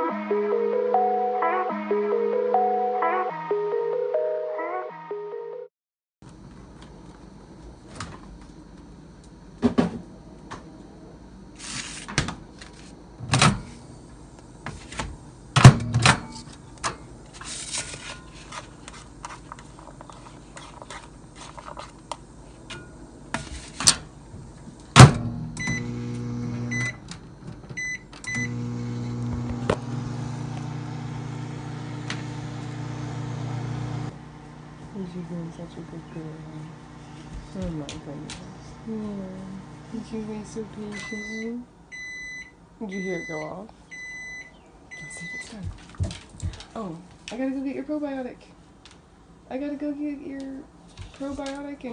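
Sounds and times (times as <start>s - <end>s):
microwave oven humming: 6.3s - 17.5s, 22.0s - 45.6s.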